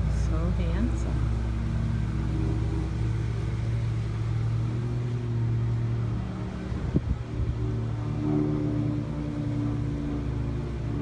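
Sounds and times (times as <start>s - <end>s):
low mechanical hum: 0.0s - 11.0s.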